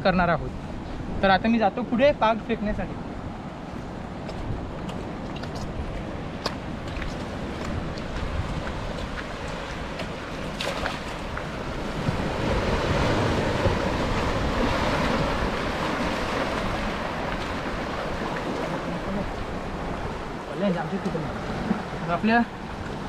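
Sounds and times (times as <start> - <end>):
wind on microphone: 2.9 - 23.0
shallow water splashing: 4.8 - 23.0.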